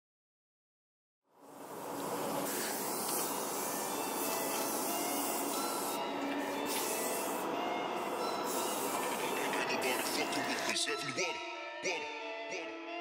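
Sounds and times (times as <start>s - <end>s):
spray paint cans hissing: 1.4s - 10.6s
trains humming: 1.4s - 10.9s.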